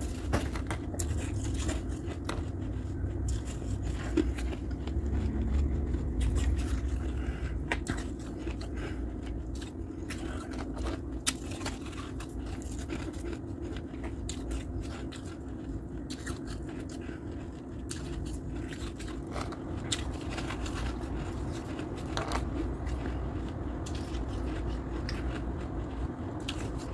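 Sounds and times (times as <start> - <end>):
ice crunching and crackling: 0.0 - 25.4.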